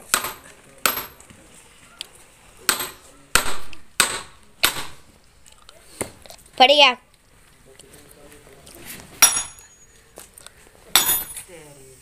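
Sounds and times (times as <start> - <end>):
hammer striking steel: 0.0 - 1.2, 2.7 - 5.0, 9.2 - 9.7, 11.0 - 11.4.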